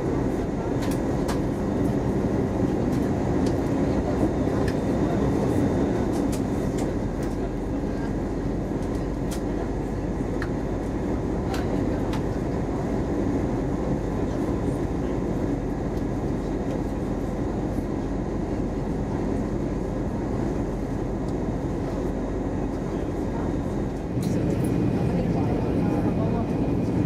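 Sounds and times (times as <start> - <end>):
airplane cabin rumble: 0.0 - 27.0.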